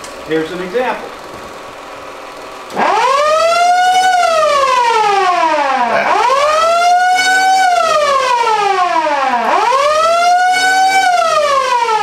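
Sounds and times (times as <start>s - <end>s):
mechanical siren wailing: 2.7s - 12.0s.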